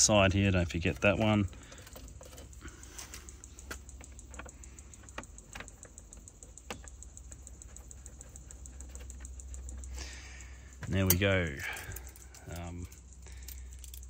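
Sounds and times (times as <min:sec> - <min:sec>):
low steady hum: 0:00.0 - 0:14.0
screw clicking against plastic: 0:03.4 - 0:10.0.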